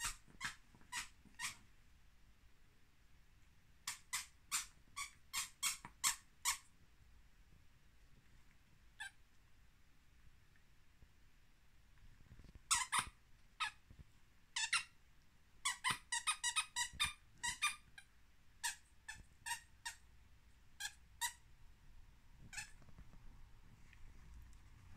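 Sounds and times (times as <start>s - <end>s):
squeaky dog toy squeaking: 0.0s - 1.6s, 3.8s - 6.7s, 12.7s - 13.8s, 14.5s - 15.0s, 15.6s - 20.0s, 20.8s - 21.4s, 22.4s - 22.8s.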